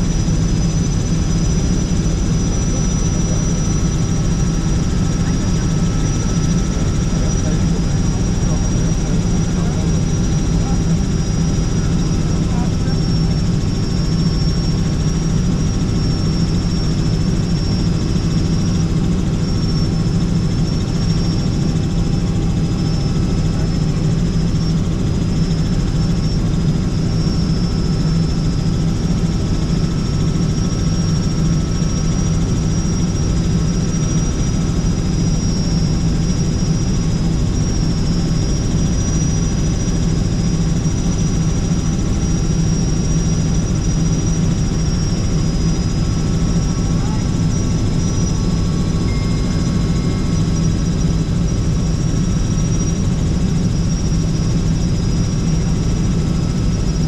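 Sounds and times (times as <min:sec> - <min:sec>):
helicopter rotor and engine drone: 0:00.0 - 0:57.0
high whine: 0:32.4 - 0:57.0.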